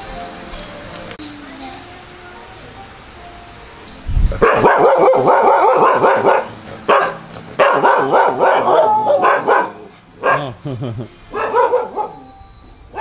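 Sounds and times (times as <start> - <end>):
dogs barking: 4.4 - 10.6, 11.3 - 12.3.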